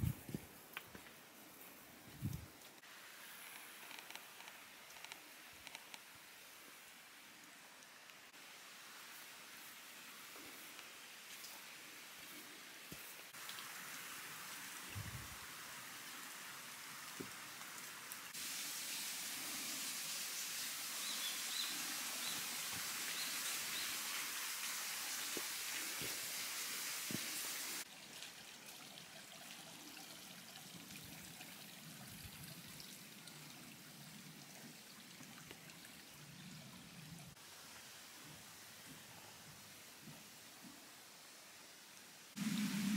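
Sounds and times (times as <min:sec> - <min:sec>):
mountain stream rushing: 0:13.1 - 0:27.9.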